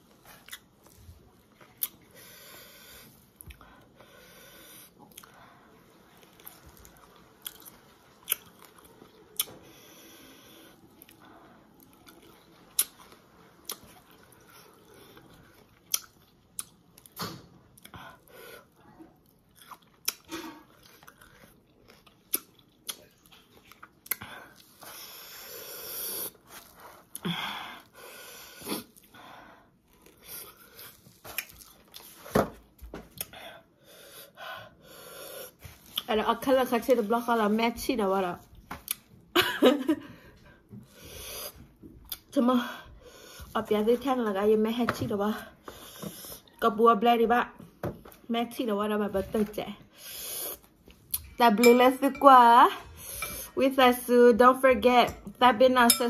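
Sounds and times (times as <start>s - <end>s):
chewing and crunching fruit: 0.1s - 2.1s, 6.1s - 9.6s, 10.9s - 25.0s, 28.6s - 33.3s.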